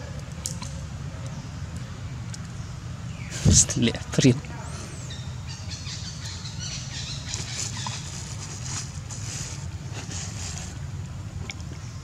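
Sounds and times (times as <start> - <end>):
faint rustles: 7.2 - 11.1.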